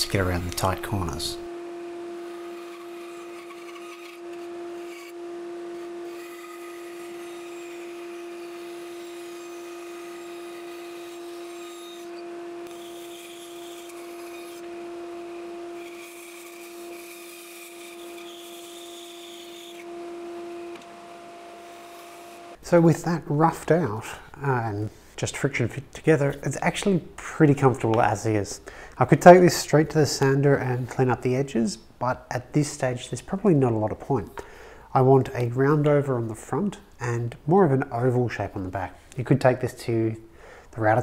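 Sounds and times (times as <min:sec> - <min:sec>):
bandsaw humming: 0:00.0 - 0:23.5
bandsaw rasping through wood: 0:02.0 - 0:22.6.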